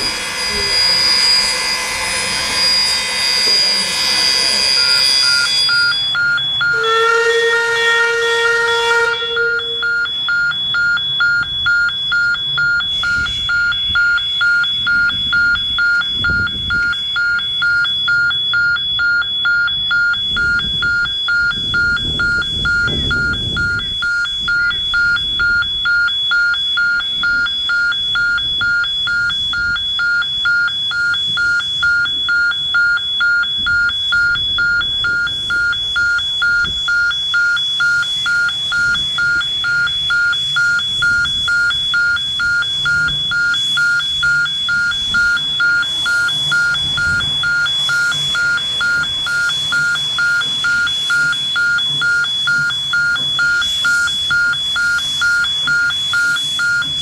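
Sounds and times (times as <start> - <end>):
steam locomotive rumbling: 0.0 - 11.8
electronic warning bell ringing: 0.0 - 57.0.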